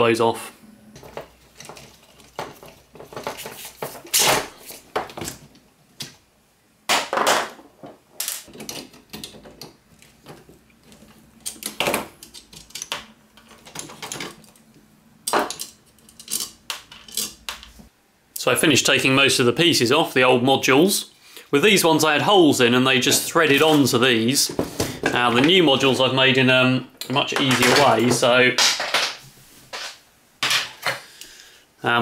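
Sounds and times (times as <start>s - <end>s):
plastic parts clicking and clattering: 1.0s - 6.2s, 6.9s - 17.8s, 27.1s - 31.0s.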